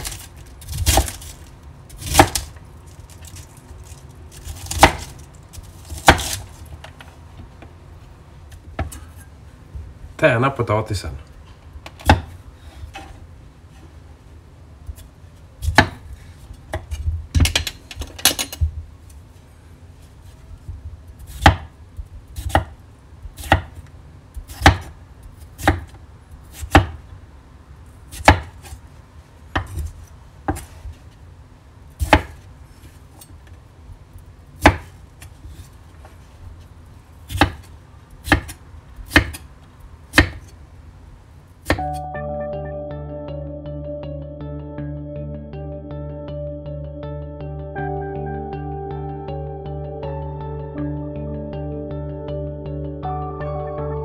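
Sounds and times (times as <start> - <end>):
knife chopping on wooden board: 5.9 - 6.4, 12.0 - 12.3, 15.6 - 16.0, 21.3 - 21.7, 22.4 - 22.7, 23.3 - 23.8, 24.4 - 24.9, 25.6 - 25.9, 26.5 - 27.0, 34.6 - 34.9, 37.3 - 39.4, 40.1 - 40.5.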